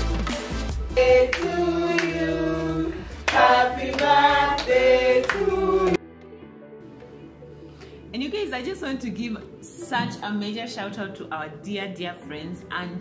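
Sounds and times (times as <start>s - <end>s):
hand claps: 0.0s - 2.2s, 3.2s - 5.6s
people singing: 0.8s - 6.0s.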